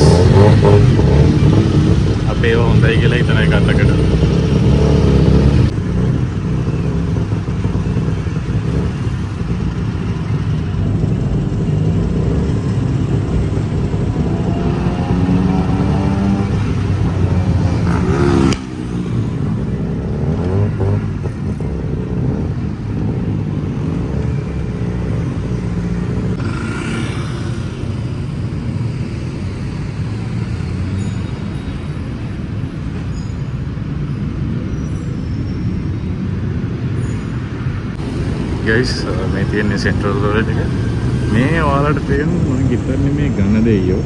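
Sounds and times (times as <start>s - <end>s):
motorcycle passing: 0.0s - 28.4s
engine running and revving: 0.0s - 34.7s
city traffic: 0.0s - 44.0s.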